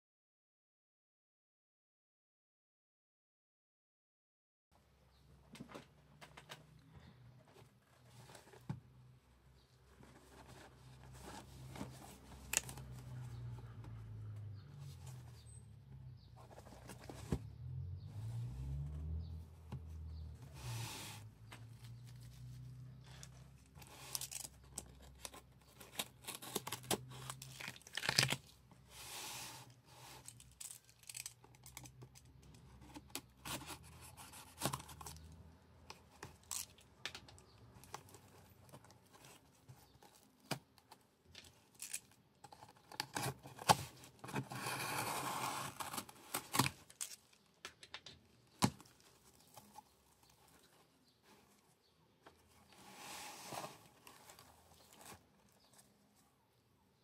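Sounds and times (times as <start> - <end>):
tape and cardboard tearing: 20.6 - 28.5, 41.7 - 47.4.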